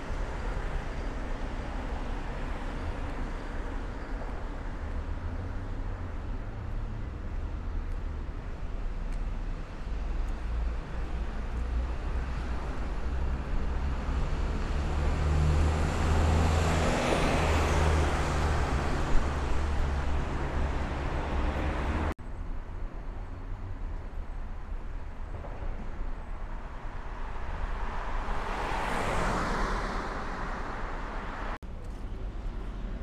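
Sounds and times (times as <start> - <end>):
low traffic rumble: 0.0 - 33.0
vehicle passing by: 13.1 - 22.1.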